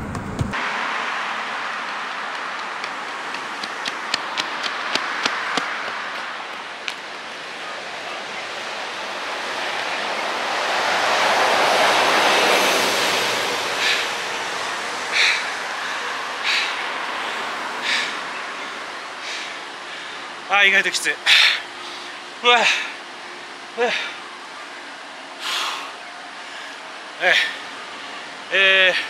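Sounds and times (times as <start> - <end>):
road traffic: 0.0 - 29.0
rush of passing traffic: 0.0 - 29.0
running shoes slapping on concrete: 1.8 - 7.3
runner breathing hard: 13.6 - 20.4, 21.2 - 23.0, 23.8 - 24.2, 25.4 - 28.4.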